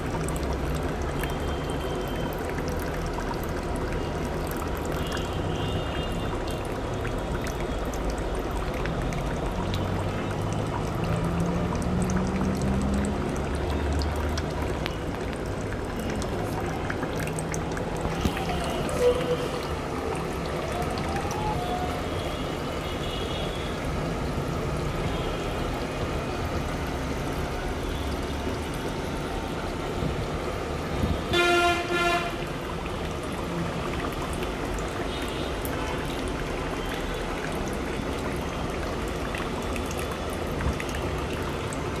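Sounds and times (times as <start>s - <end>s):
water splashing into plastic tub: 0.0s - 21.8s
horn-like tone: 31.3s - 32.4s.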